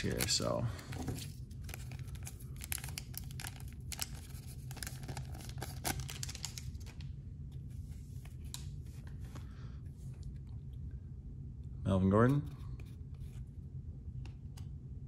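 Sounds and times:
steady low hum: 0.0s - 15.0s
foil wrapper crinkling: 1.6s - 7.0s.

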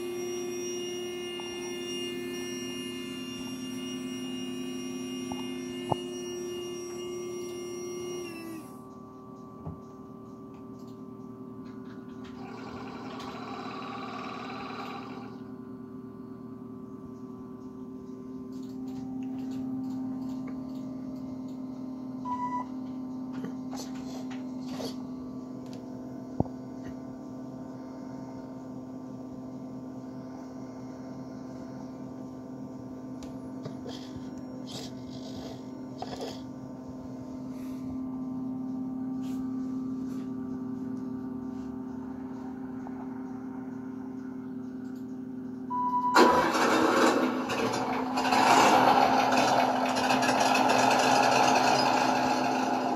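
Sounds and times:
steady multi-tone hum: 0.0s - 52.9s
short beep: 45.7s - 46.5s.

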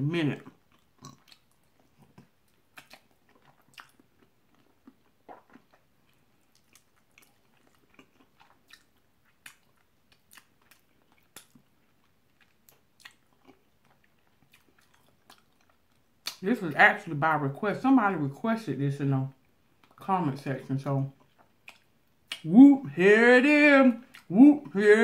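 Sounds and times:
chewing and biting: 0.4s - 16.4s, 21.2s - 22.5s
wet clicks and smacks: 1.2s - 4.0s, 16.2s - 16.4s, 21.3s - 22.5s.

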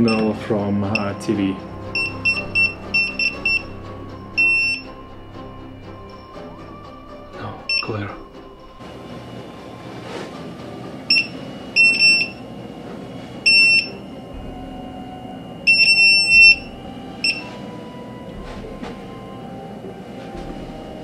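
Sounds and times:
detector high-pitched beeping: 0.0s - 5.5s, 7.4s - 8.2s, 11.1s - 12.4s, 13.5s - 14.1s, 15.6s - 17.5s.

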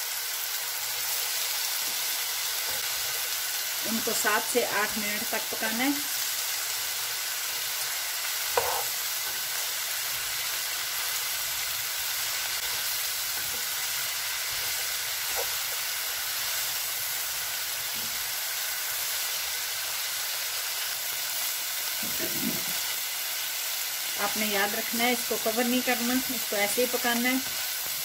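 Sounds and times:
vegetables sizzling in oil: 0.0s - 28.0s
spatula knocking against pan: 8.6s - 8.9s.

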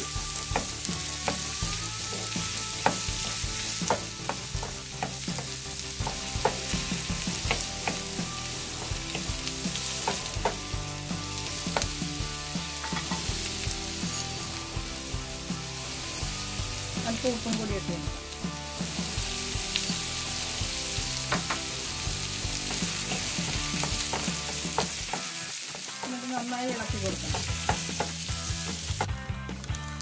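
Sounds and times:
onions sizzling in pan: 0.0s - 30.0s
spatula tapping and scraping pan: 12.8s - 13.3s, 22.7s - 25.3s, 27.2s - 28.2s.

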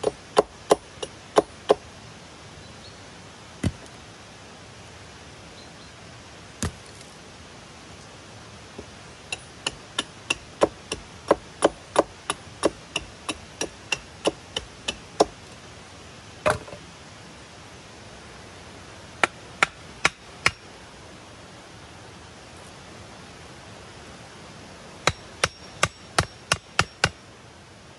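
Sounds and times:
hatchet striking wood: 0.0s - 1.8s, 3.6s - 3.9s, 6.6s - 6.8s, 9.3s - 15.4s, 19.2s - 20.6s, 25.1s - 27.2s.

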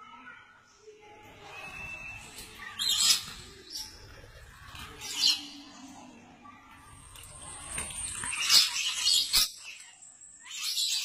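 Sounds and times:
parrots chirping and squawking: 1.4s - 5.9s, 6.9s - 11.0s.

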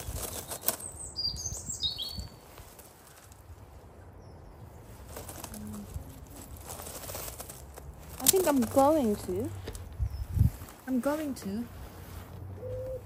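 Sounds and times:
small bird chirping: 0.0s - 2.4s, 10.0s - 10.6s
rustling of jacket and stems: 0.0s - 4.0s, 4.6s - 13.0s.

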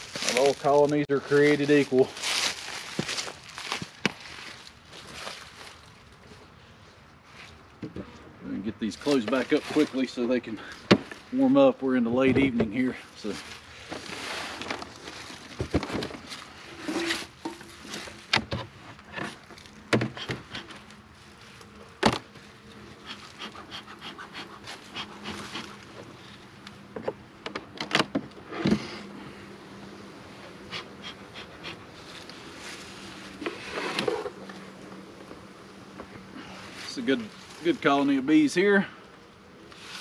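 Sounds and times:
honeybees buzzing: 12.7s - 40.0s.

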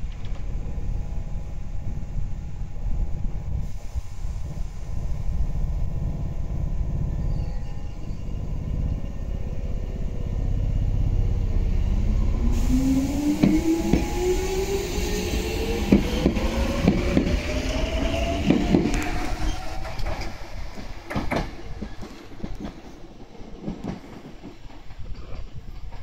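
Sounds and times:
traction motor whine rising: 11.6s - 20.4s.

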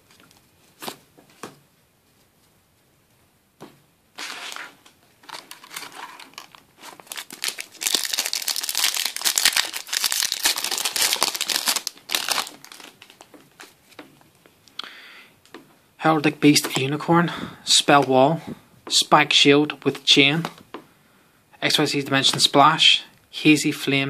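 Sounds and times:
foil wrapper crinkling: 4.2s - 14.0s.

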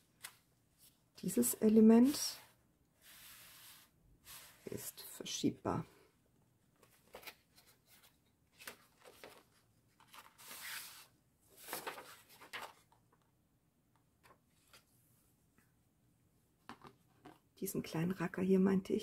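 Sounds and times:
paper pages rustling: 6.8s - 13.2s.

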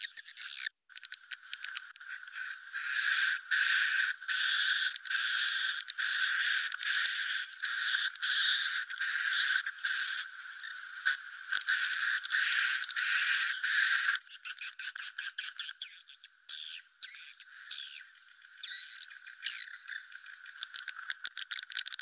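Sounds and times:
recorded swiftlet chirring calls: 0.0s - 22.0s.

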